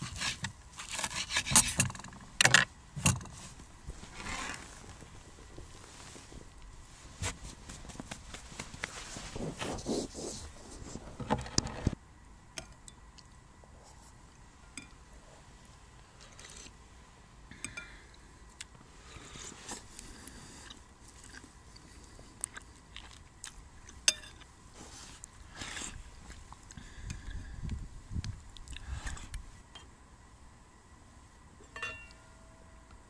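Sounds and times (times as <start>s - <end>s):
person chewing: 20.6s - 24.0s, 28.6s - 29.4s.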